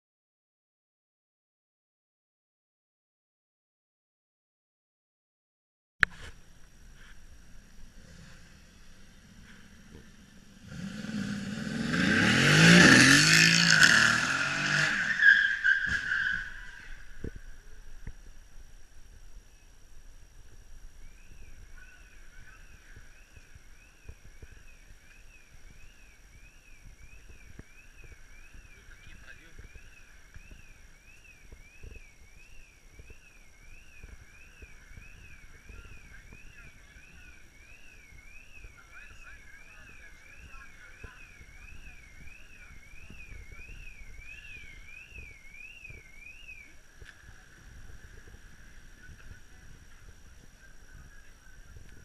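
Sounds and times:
car engine revving: 7.5 - 17.1
electronic siren wailing: 11.5 - 17.4, 21.2 - 46.8
tyres squealing: 12.8 - 17.0.

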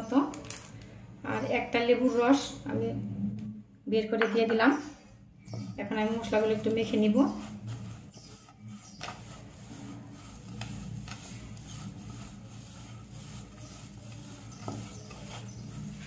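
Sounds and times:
hand scraping spice mix on plate: 5.5 - 16.0.

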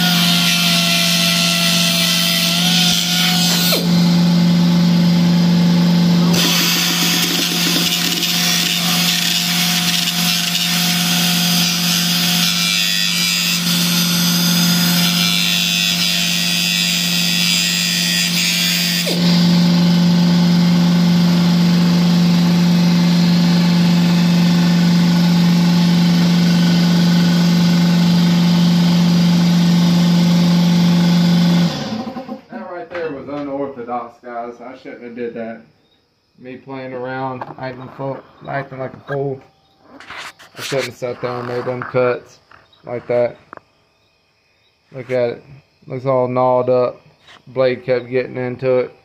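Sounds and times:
gritty metal cutting noise: 0.0 - 32.4, 36.8 - 43.6
cut-off wheel motor whine: 0.0 - 32.5.

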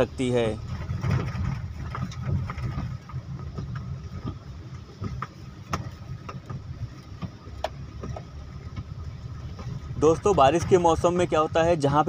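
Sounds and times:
car engine and road rumble: 0.0 - 12.0
raindrops ticking on windscreen: 0.0 - 12.0.

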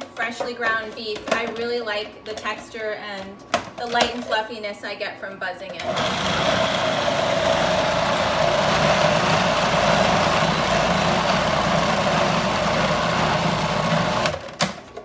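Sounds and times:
food processor motor running: 5.8 - 14.6.

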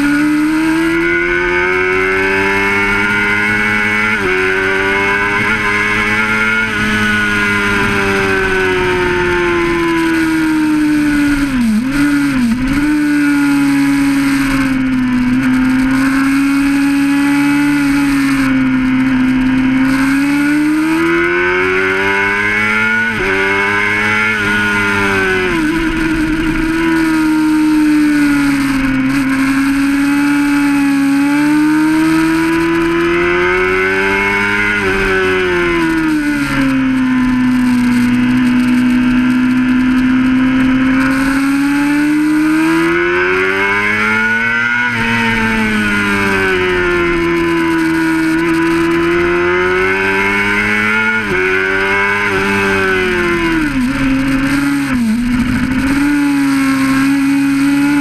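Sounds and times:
motorcycle engine revving high: 0.0 - 58.0
wind rush on microphone: 0.2 - 31.7, 44.9 - 58.0.

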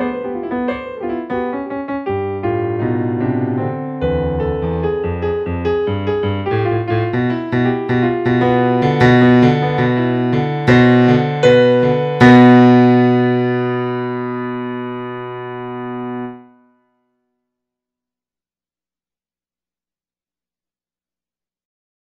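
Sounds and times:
piano music: 0.0 - 16.8.

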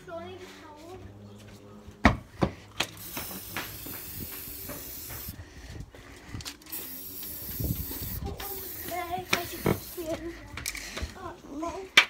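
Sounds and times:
spray-paint can hissing: 2.9 - 5.4, 6.7 - 10.1.

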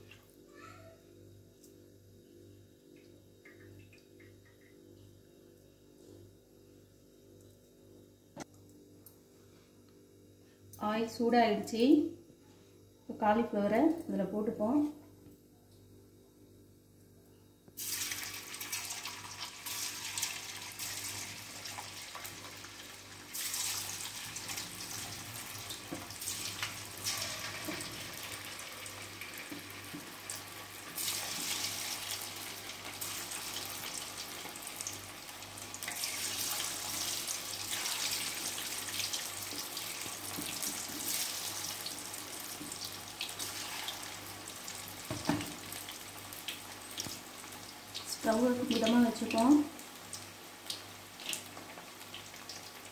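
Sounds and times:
cauliflower deep-frying in oil: 17.8 - 52.9.

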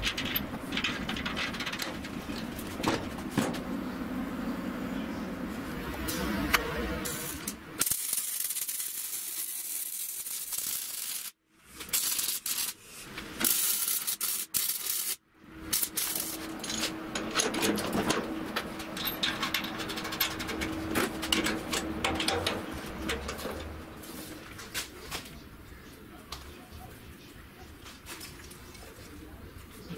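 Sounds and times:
steady hum: 0.0 - 7.9, 15.3 - 27.7
arc welding crackling: 7.0 - 17.1.

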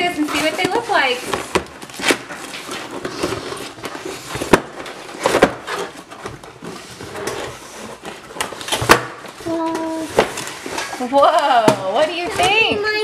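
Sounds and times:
cardboard flaps scraping and rustling: 0.0 - 11.2.

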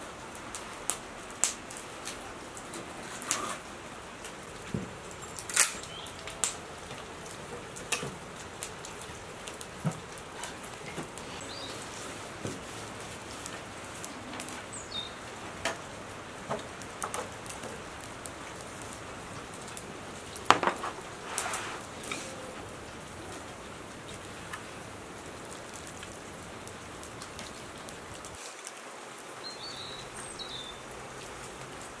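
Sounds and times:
light rain pattering: 0.0 - 32.0
sharp drips and ticks: 0.0 - 32.0.

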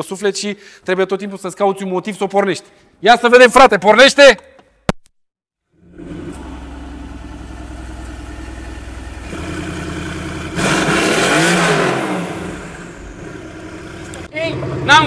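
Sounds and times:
car engine idling and revving: 5.8 - 15.0.

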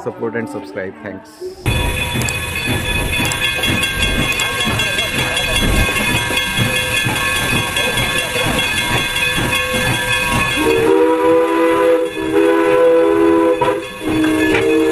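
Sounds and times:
steam locomotive chuffing: 1.6 - 14.9
steam whistle chord: 10.6 - 14.9.

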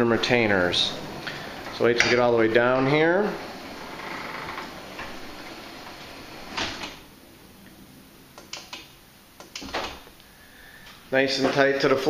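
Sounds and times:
garage door opener running: 0.0 - 7.1.

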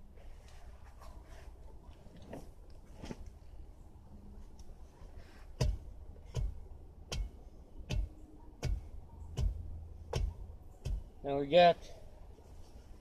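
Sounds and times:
bar thudding on ground: 5.6 - 11.1.

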